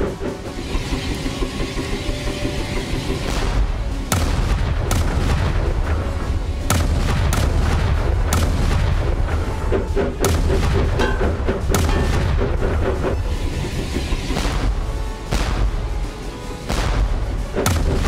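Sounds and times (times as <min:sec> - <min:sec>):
dramatic orchestral music: 0:00.0 - 0:18.0
artillery explosions booming: 0:03.3 - 0:13.3.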